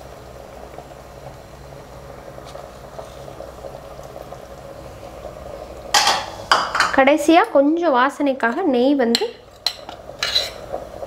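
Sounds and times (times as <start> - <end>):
liquid bubbling at a boil: 0.0 - 7.2.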